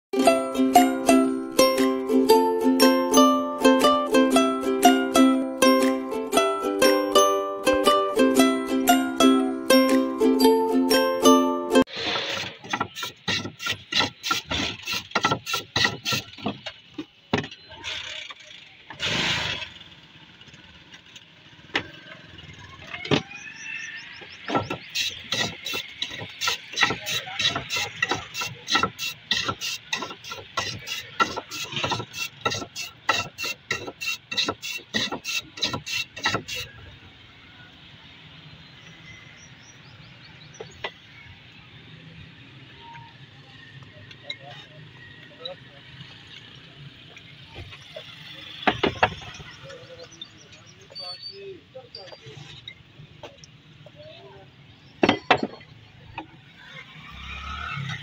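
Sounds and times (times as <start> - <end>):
ice shaved over a blade: 12.0 - 16.4, 24.8 - 36.7.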